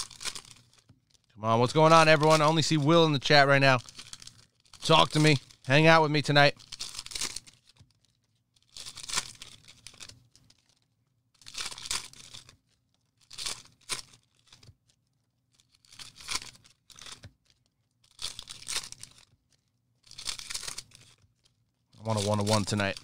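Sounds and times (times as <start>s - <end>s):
card pack wrappers tearing: 0.0s - 10.8s, 20.0s - 23.0s
wrapper crinkling: 0.0s - 23.0s.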